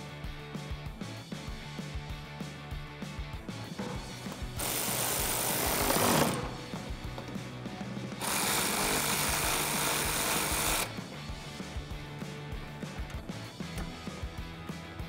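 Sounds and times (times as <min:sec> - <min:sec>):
power tool driving bolts: 0:03.8 - 0:07.5, 0:08.2 - 0:11.0.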